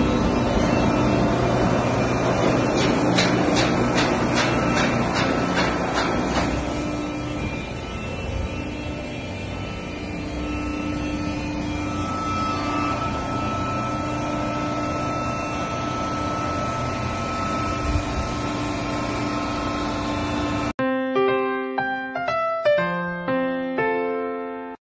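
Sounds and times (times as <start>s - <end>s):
baler machine hum with whine: 0.0s - 20.7s.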